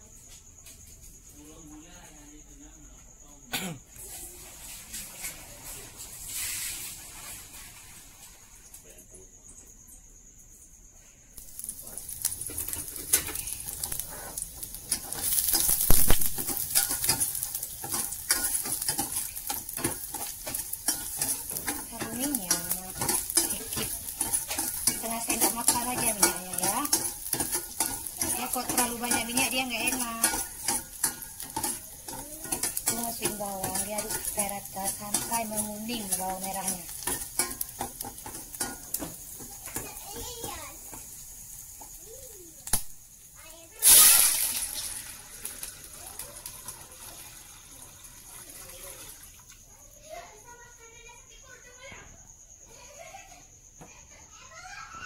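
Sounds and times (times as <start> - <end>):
shallots sizzling in oil: 4.0 - 8.9, 11.4 - 50.9
metal spoon scraping pan: 11.6 - 39.8.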